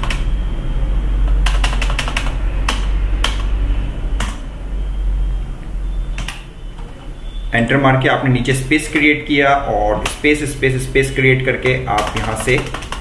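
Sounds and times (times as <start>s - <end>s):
keyboard keystrokes: 0.0s - 0.3s, 1.3s - 3.5s, 6.2s - 6.4s, 11.6s - 13.0s
low electrical hum: 0.0s - 13.0s.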